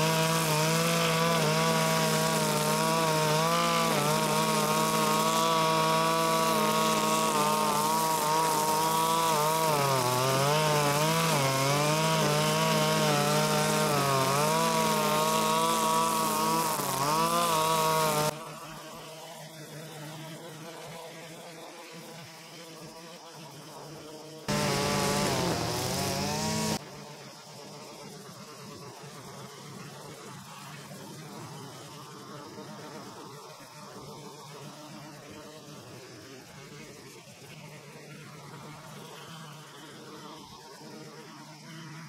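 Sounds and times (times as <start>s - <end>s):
brush cutter engine cutting grass: 0.0s - 21.0s, 24.5s - 26.9s.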